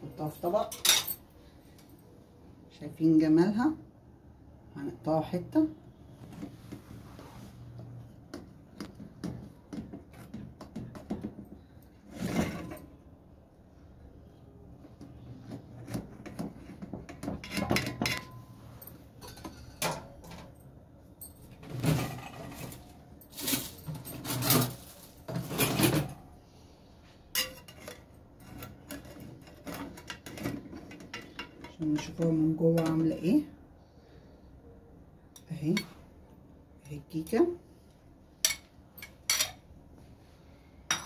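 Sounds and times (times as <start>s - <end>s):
utensils clinking on enamel dish: 38.4s - 39.6s.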